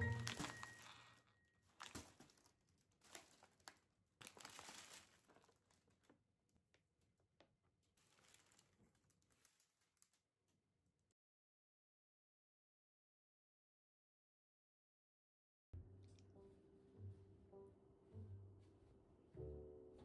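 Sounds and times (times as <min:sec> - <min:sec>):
crinkling and rustling: 0:00.0 - 0:10.7.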